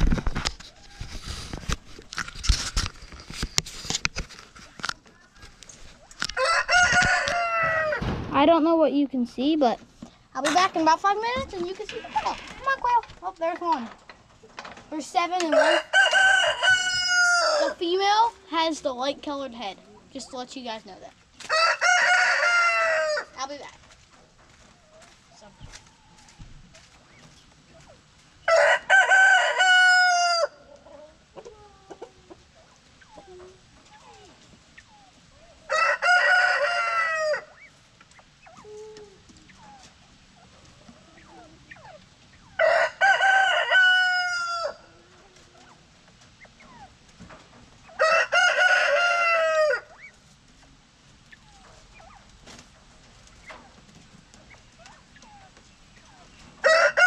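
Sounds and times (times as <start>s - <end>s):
rooster crowing: 6.3s - 8.0s, 15.6s - 17.8s, 21.5s - 23.3s, 28.4s - 30.6s, 35.7s - 37.6s, 42.6s - 44.9s, 48.0s - 49.9s, 56.6s - 57.0s.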